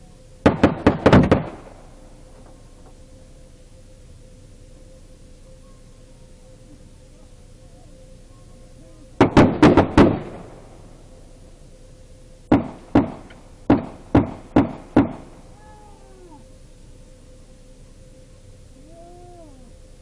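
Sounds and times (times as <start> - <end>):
gunshots with short echo: 0.4 - 1.9, 9.2 - 10.8, 12.5 - 15.4.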